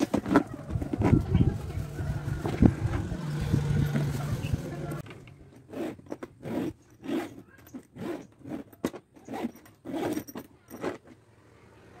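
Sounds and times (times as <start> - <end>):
suitcase zipper zipping: 5.6 - 11.2.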